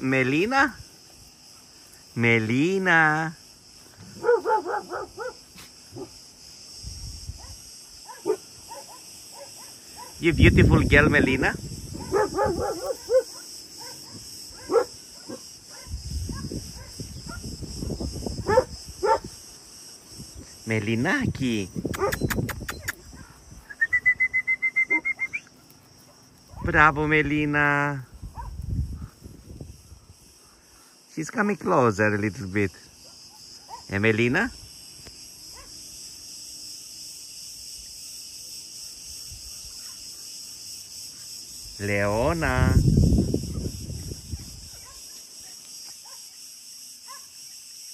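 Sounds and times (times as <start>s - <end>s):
high buzz of insects: 0.0s - 47.9s
dogs barking: 4.1s - 6.2s, 7.4s - 10.2s, 12.0s - 17.5s, 18.4s - 19.3s, 21.9s - 23.4s, 24.9s - 26.8s, 28.3s - 28.6s, 33.0s - 34.0s, 35.5s - 35.8s, 44.4s - 46.3s, 47.0s - 47.4s.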